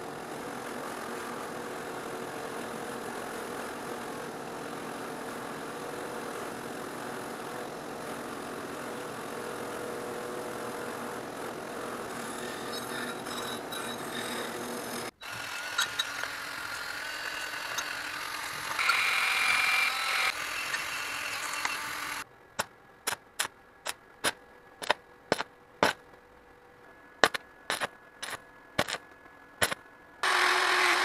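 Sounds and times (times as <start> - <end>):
rotary wire brush rasping: 12.1 - 22.2
arc welding cracks and pops: 27.2 - 29.8.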